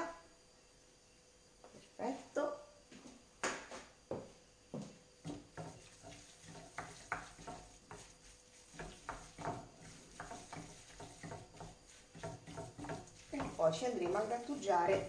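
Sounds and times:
hand squishing mash in a bowl: 5.6s - 15.0s.

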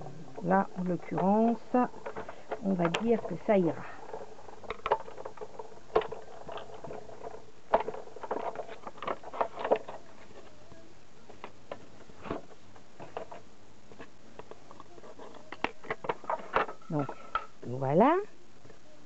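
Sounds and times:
plastic plates clicking and tapping: 0.4s - 10.0s.

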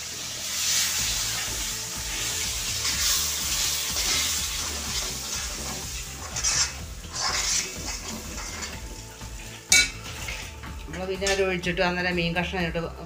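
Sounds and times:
oil sizzling in a wok: 0.0s - 12.6s
spoon scraping a pan: 2.7s - 10.6s.

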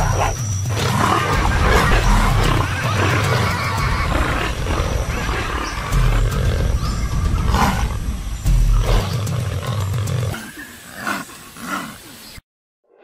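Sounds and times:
jaguar growling and roaring: 0.0s - 12.1s.

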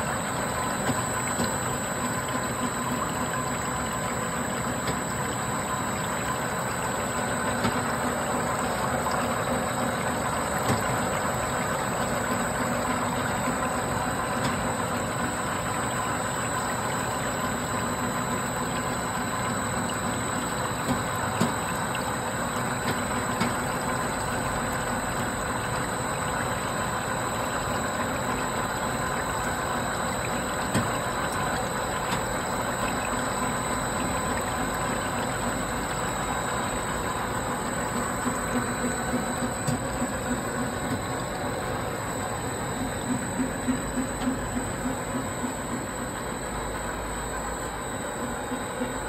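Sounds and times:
machine humming: 25.5s - 49.0s.

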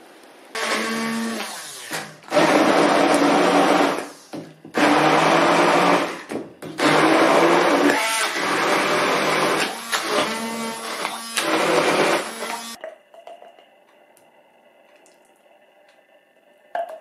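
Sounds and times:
immersion blender pureeing: 0.6s - 12.8s.

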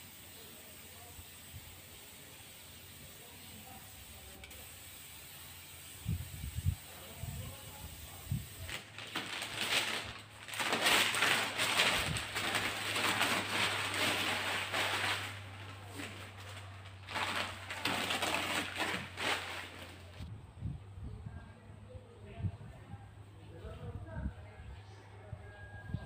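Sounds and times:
newspaper peeled and crumpled: 8.5s - 20.3s.

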